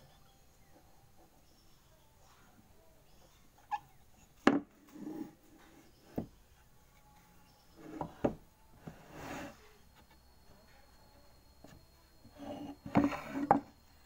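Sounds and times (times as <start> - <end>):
wood scraping and sliding: 4.5 - 6.3, 7.8 - 10.2, 12.2 - 13.8.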